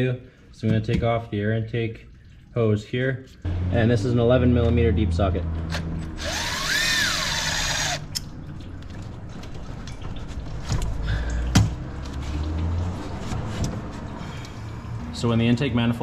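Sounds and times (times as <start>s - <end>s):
cordless driver motor whine: 6.1s - 8.1s.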